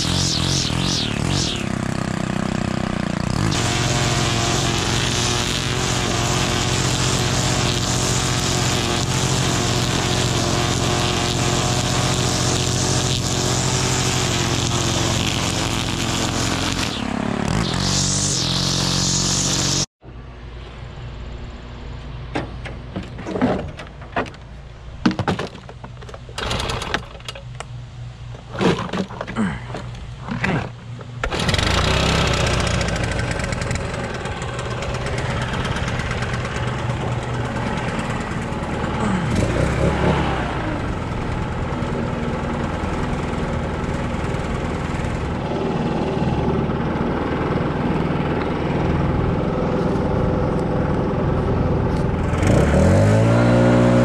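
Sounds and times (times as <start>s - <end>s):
trimmer engine running: 0.0s - 19.9s, 26.4s - 26.9s, 30.3s - 54.0s
knocks and clunks from equipment: 22.3s - 27.4s, 28.4s - 29.9s.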